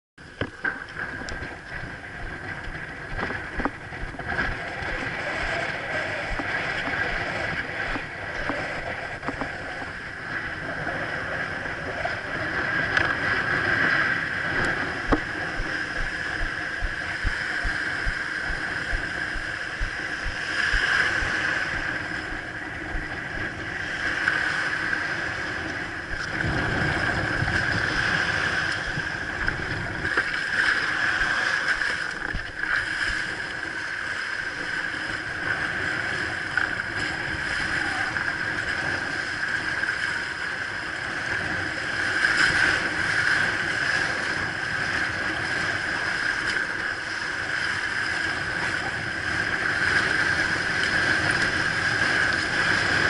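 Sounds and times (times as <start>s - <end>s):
surf washing on beach: 0.2s - 53.0s
wind buffeting microphone: 0.3s - 53.0s
water rushing past board: 12.8s - 33.6s.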